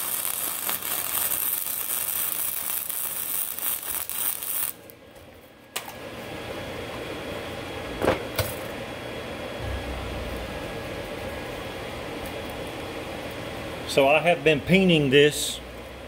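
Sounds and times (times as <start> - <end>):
mechanical hum: 0.0 - 16.0
low thump: 9.6 - 11.8.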